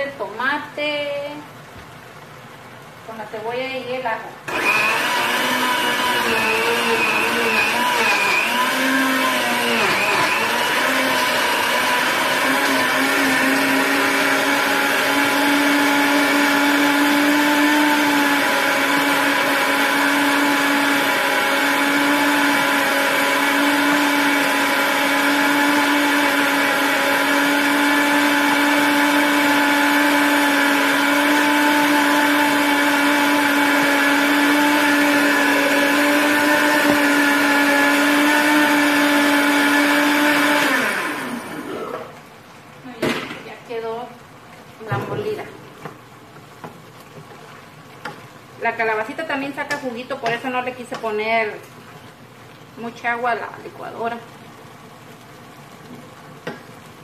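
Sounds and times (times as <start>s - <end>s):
blender motor whine: 4.5s - 42.2s.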